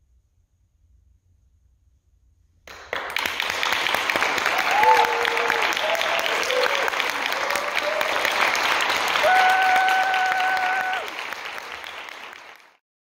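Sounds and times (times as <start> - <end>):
audience applauding: 2.7 - 12.8
vocal whoops: 4.4 - 11.3.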